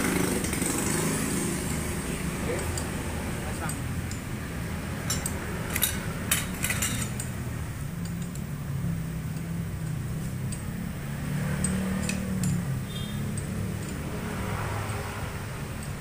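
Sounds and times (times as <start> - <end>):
socket wrench clinking on metal: 2.5 - 4.4, 5.0 - 7.4, 8.0 - 8.6, 11.4 - 16.0.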